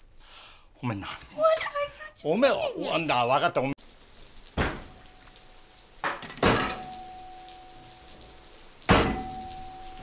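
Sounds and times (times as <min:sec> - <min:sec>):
metal kitchenware knocks: 0:06.0 - 0:06.9, 0:08.9 - 0:09.6.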